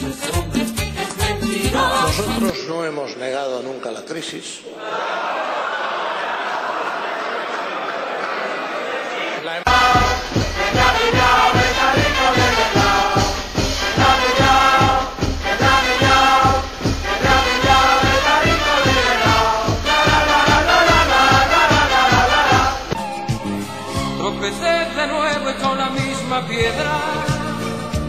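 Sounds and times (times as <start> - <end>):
music with fast beat: 0.0 - 2.5, 9.7 - 24.2
voices singing together: 0.0 - 2.5, 4.8 - 23.0, 24.4 - 28.0.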